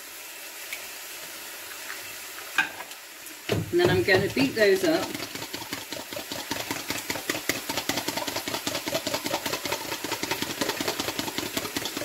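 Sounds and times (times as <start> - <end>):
fork beating eggs in plastic jug: 3.7 - 12.0.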